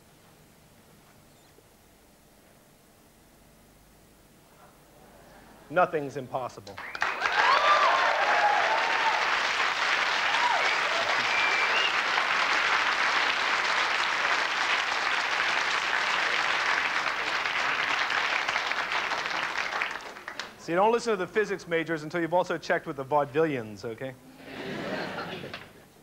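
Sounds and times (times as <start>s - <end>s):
audience cheering: 6.8s - 20.5s
audience applauding: 6.8s - 20.6s.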